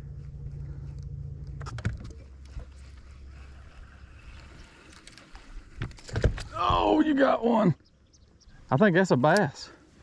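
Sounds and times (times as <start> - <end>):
boat motor humming: 0.0 - 9.1.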